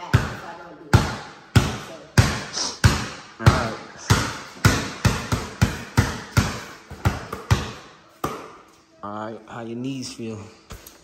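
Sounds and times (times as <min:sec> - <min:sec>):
basketball bouncing on tile floor: 0:00.0 - 0:08.7.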